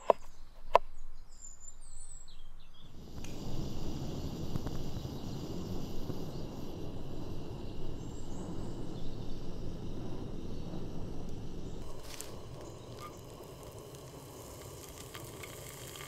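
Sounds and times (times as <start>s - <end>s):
stove burner rushing: 3.0s - 16.0s.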